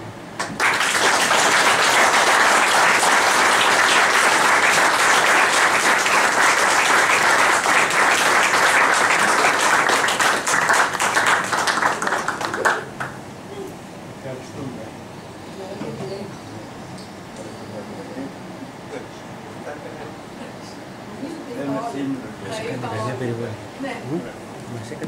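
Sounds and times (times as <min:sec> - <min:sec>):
audience applauding: 0:00.4 - 0:13.2.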